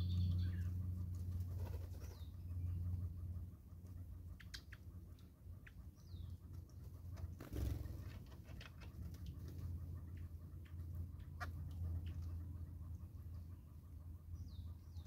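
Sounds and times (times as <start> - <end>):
bird chirps: 0.0 - 3.4, 4.0 - 6.8, 9.5 - 15.0
low steady hum: 0.0 - 15.0
wings fluttering: 1.0 - 2.2, 6.8 - 9.9.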